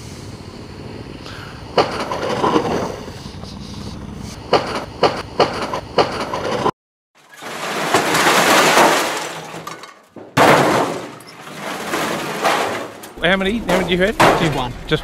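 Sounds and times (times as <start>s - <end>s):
sharp knocks: 1.8s - 2.8s, 4.5s - 6.7s.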